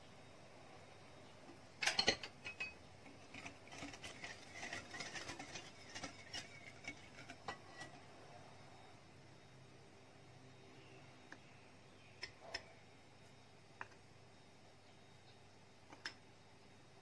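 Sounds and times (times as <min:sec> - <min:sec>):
whisk clinking against glass bowl: 0:01.8 - 0:08.0.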